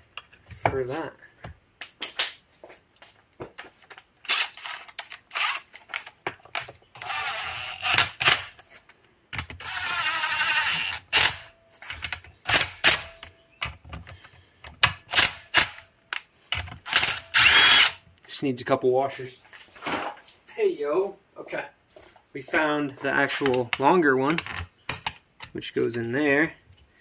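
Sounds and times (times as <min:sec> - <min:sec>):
cordless drill-driver running: 0:05.3 - 0:05.6, 0:07.0 - 0:08.0, 0:09.6 - 0:11.5, 0:16.9 - 0:18.0.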